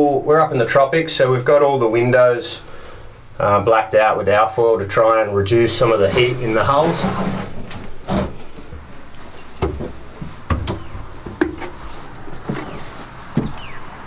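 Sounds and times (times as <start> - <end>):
knocks and thuds on wooden steps: 9.6 - 11.8, 12.4 - 13.8.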